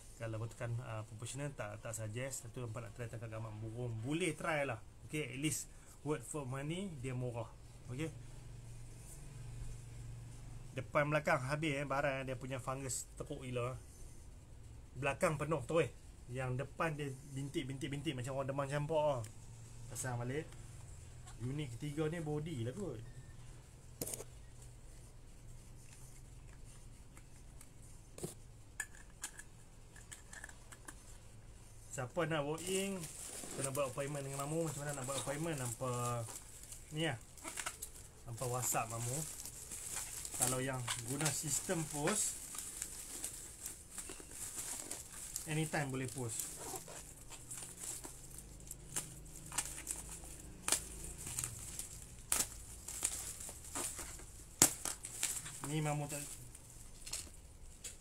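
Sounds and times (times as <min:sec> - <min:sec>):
bubble wrap crinkling and crackling: 0:31.8 - 0:58.0.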